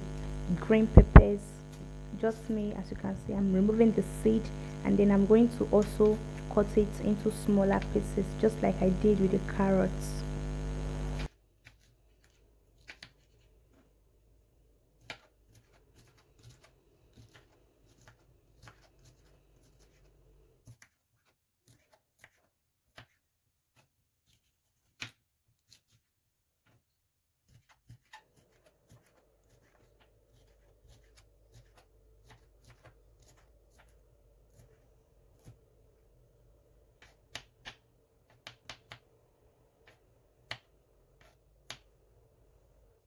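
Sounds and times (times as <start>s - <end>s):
knife cutting pepper on board: 15.0s - 26.1s, 27.4s - 35.7s.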